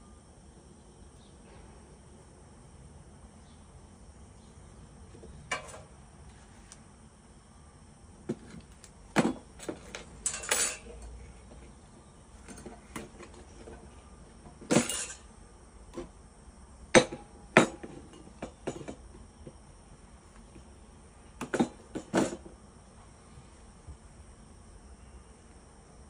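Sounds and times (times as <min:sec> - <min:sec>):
metal tools clinking on workbench: 0:05.5 - 0:05.9, 0:09.6 - 0:11.1, 0:14.7 - 0:15.3.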